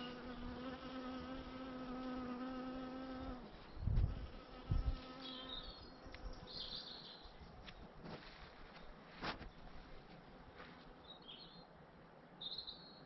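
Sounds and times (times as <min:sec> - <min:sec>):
bee buzzing: 0:00.0 - 0:06.8.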